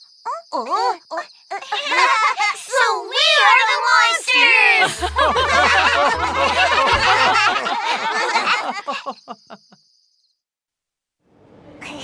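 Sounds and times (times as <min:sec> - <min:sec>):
cartoon voices laughing: 0:01.5 - 0:02.6, 0:04.6 - 0:09.8.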